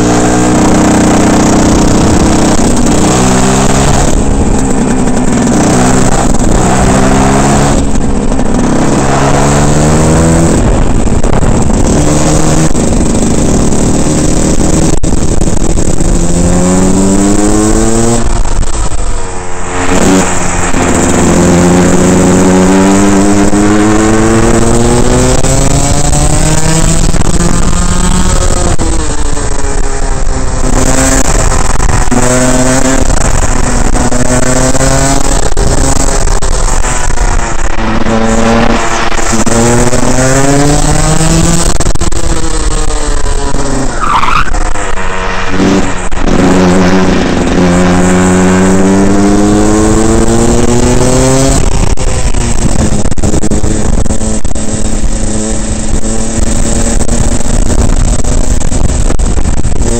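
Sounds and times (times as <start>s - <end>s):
kart engine revving: 0.0s - 59.9s
short high squeal: 43.8s - 45.0s.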